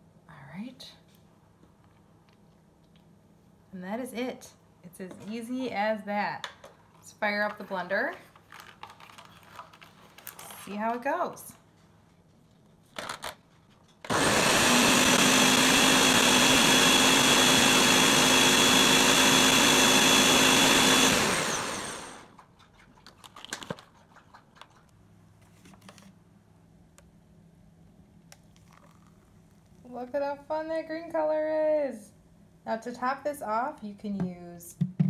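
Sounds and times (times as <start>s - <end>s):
blender running: 14.1s - 22.3s.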